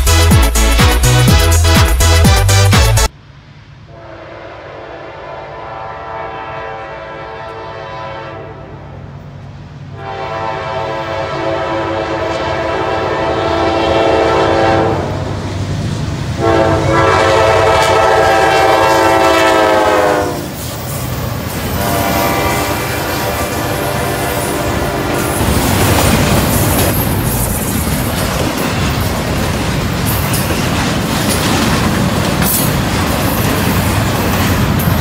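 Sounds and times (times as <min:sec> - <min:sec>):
locomotive air horn blasts: 0:00.0 - 0:03.1, 0:03.9 - 0:08.9, 0:09.9 - 0:15.2, 0:16.4 - 0:20.6, 0:21.7 - 0:25.6
rumble of rolling train: 0:03.0 - 0:35.0.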